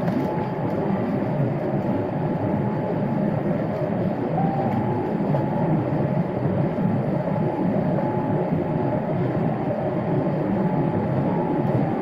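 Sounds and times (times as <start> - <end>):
faint steady whine: 0.0 - 12.0
jet engines rumbling in cabin: 0.0 - 12.0.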